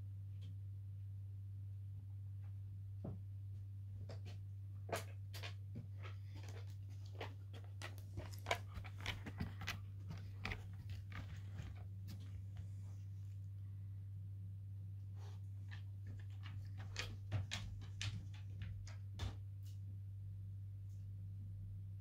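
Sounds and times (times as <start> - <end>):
steady low hum: 0.0 - 22.0
puppy chewing a bone: 5.0 - 12.6.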